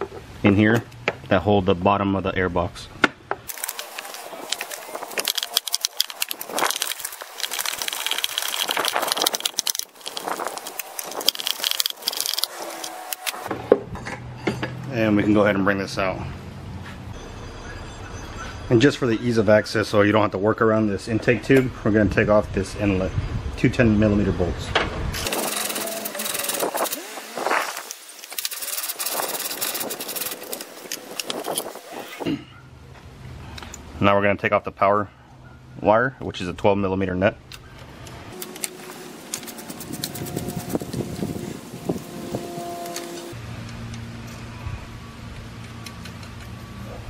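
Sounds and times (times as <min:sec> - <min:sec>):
hand ratchet clicking: 0:03.5 - 0:13.5, 0:25.3 - 0:31.8.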